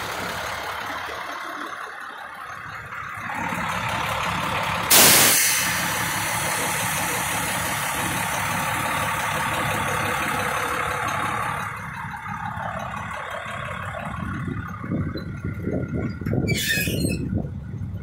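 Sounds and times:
diesel engine idling: 0:00.0 - 0:18.0
loud steady hiss: 0:04.9 - 0:08.0.

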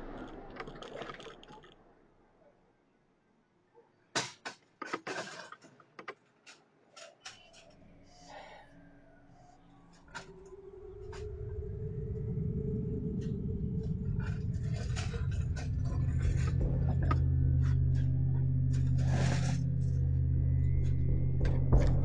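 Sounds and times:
steady low hum: 0:10.3 - 0:22.0.

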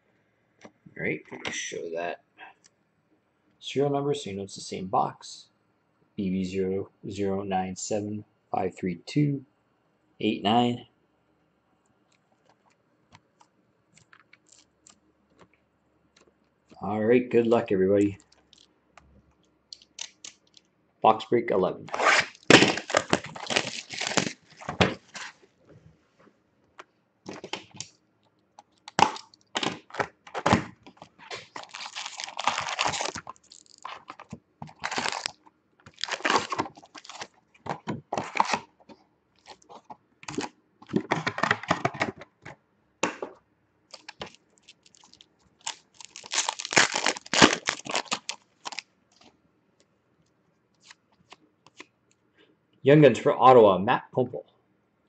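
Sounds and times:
foil packs crinkling: 0:21.9 - 0:25.4, 0:28.8 - 0:38.7, 0:39.4 - 0:41.6, 0:43.9 - 0:48.8
plastic wrap tearing: 0:21.9 - 0:25.4, 0:28.8 - 0:38.7, 0:39.4 - 0:41.5, 0:43.9 - 0:48.8.

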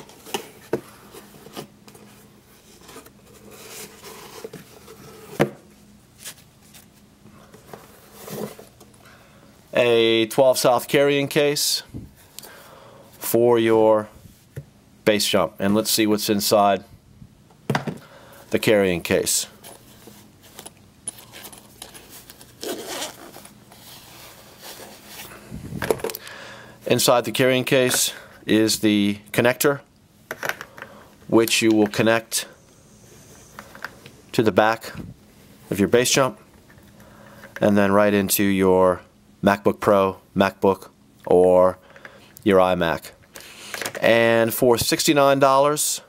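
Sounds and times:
packaging rubbing and scraping: 0:21.2 - 0:25.5
zipper pulled open: 0:22.6 - 0:23.4.

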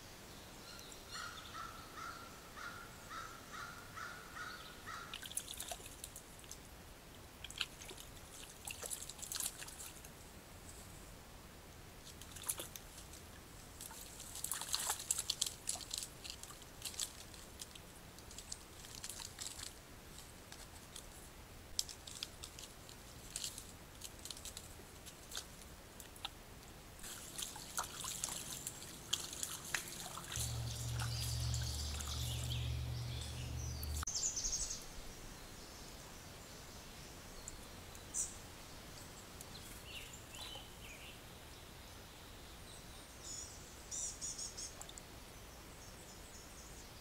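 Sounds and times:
creek water trickling: 0:03.1 - 0:10.8, 0:11.9 - 0:35.4, 0:37.1 - 0:41.5
water splashes: 0:05.1 - 0:06.7, 0:07.4 - 0:10.1, 0:12.1 - 0:17.6, 0:27.0 - 0:33.2
low steady hum: 0:05.7 - 0:43.9.

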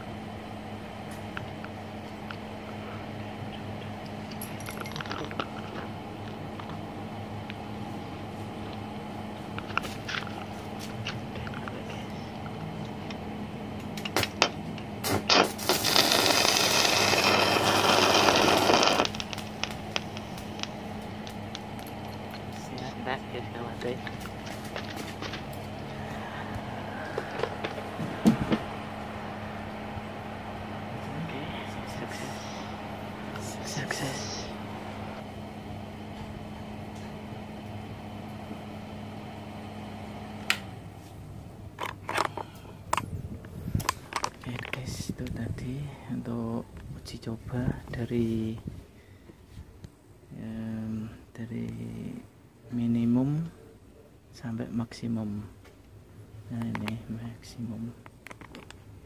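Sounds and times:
welding machine fan hum: 0:00.0 - 0:53.6
welding arc: 0:14.0 - 0:22.8.

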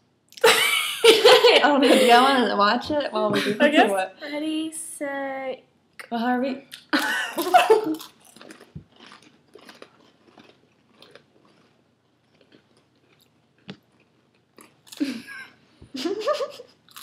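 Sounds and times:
people crunching crackers: 0:06.8 - 0:15.3, 0:16.7 - 0:17.0.

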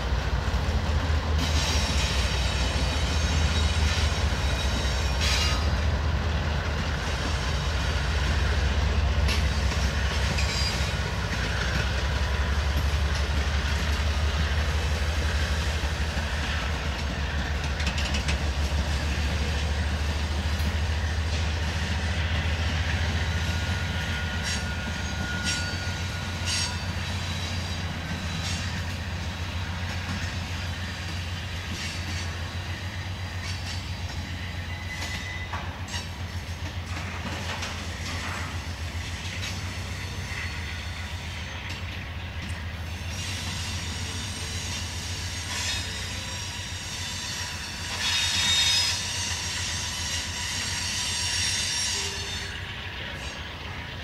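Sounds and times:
freight train rumbling past: 0:00.0 - 0:54.0
high wheel squeal: 0:01.4 - 0:05.9, 0:06.9 - 0:13.0, 0:18.0 - 0:42.0, 0:42.9 - 0:53.7
wheels clicking over rail joints: 0:16.8 - 0:19.0.

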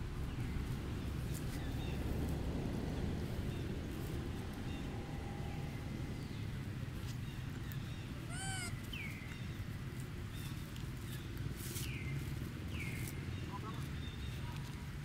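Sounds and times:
low background rumble: 0:00.0 - 0:11.4
baby monkey squeak: 0:08.3 - 0:08.7.

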